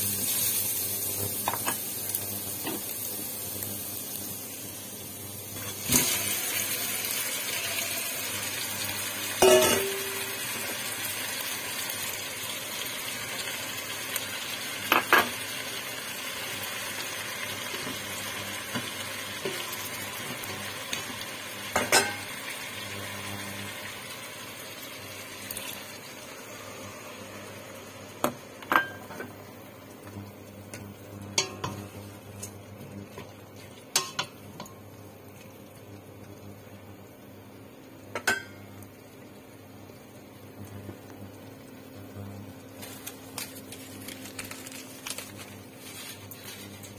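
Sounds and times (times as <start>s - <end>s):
chicken sizzling in a pot: 0.0s - 46.9s
utensils knocking against pot: 9.4s - 10.2s, 33.9s - 34.7s.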